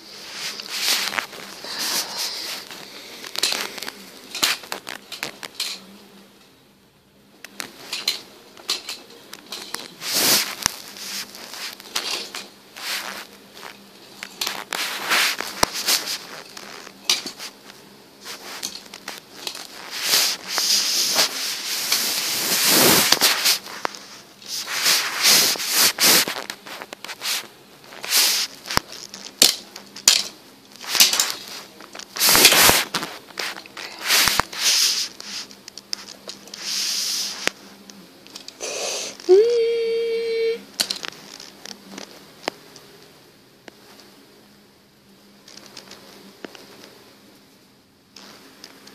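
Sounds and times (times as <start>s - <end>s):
hissing crashing bursts: 10.0s - 11.8s, 18.2s - 26.4s, 33.9s - 35.5s, 36.5s - 37.5s
voiced tone held: 38.6s - 40.7s.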